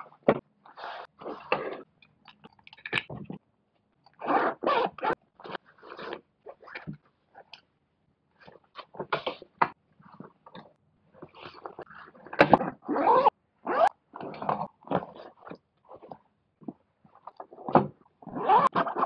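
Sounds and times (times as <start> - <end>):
zipper pulled open: 4.2 - 7.5, 11.4 - 16.2, 18.2 - 19.0.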